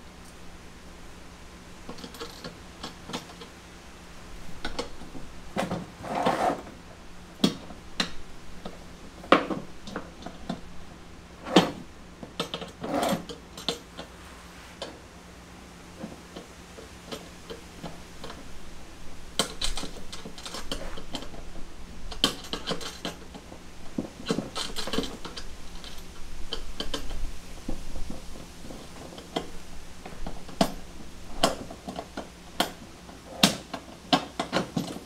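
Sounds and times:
metal rattling scrapes: 4.6 - 6.8, 10.0 - 15.0.

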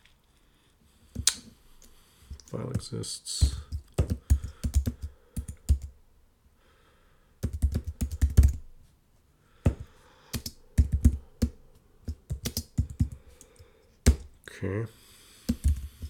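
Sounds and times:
computer keyboard typing: 3.4 - 5.9, 7.4 - 8.6, 9.7 - 14.3, 15.5 - 16.0.

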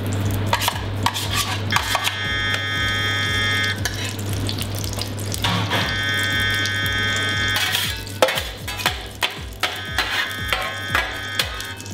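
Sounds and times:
low hum: 0.0 - 11.9
metal spoon scraping a metal pan: 0.5 - 2.6, 3.8 - 4.2, 7.5 - 11.9.

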